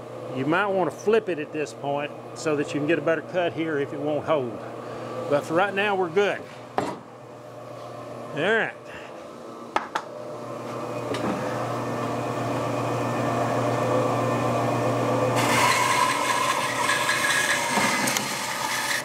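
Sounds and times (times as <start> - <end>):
bandsaw humming: 10.4 - 19.0
saw blade cutting wood: 15.4 - 19.0.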